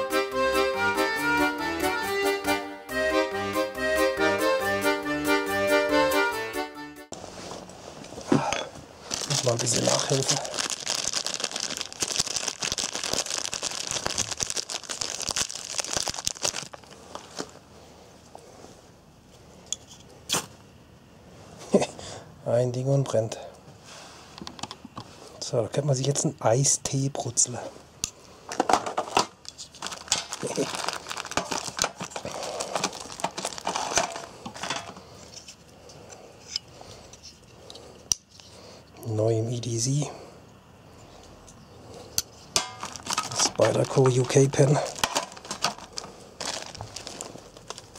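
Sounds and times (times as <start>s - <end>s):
paper tissue crumpling: 9.0s - 17.6s, 29.7s - 34.4s, 42.8s - 47.9s
small fire crackling: 9.0s - 17.6s, 42.6s - 47.9s.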